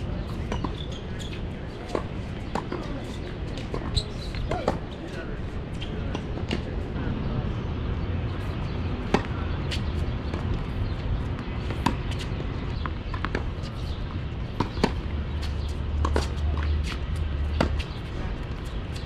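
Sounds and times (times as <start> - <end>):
racquets striking tennis ball: 9.0 - 19.0.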